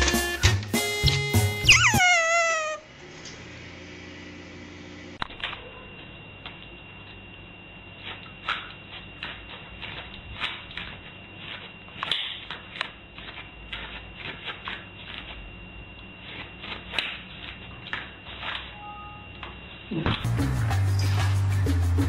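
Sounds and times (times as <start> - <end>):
dog claws clicking on floor: 8.1 - 15.3.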